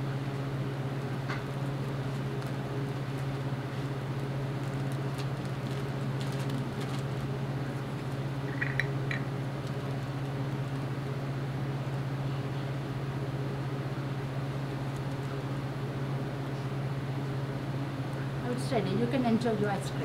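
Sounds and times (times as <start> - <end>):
low room hum: 0.0 - 20.0
plastic zipper bag crackling: 1.5 - 8.2.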